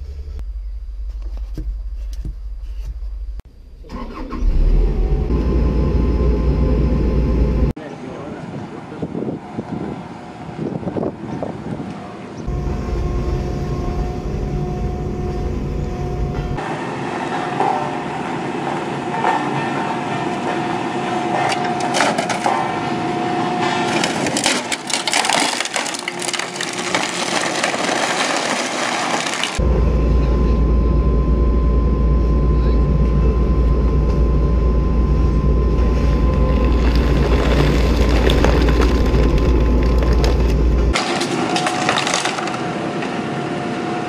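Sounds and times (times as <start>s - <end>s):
heavy low rumble: 0.0s - 7.8s, 12.5s - 16.6s, 29.6s - 41.0s.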